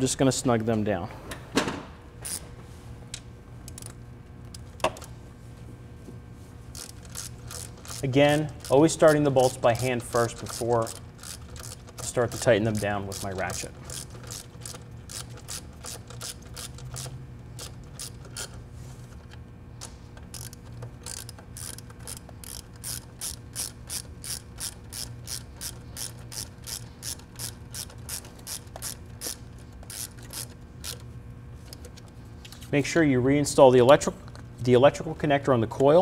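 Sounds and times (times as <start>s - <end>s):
ratchet wrench clicking: 2.2s - 2.4s, 6.8s - 18.6s, 20.3s - 31.0s.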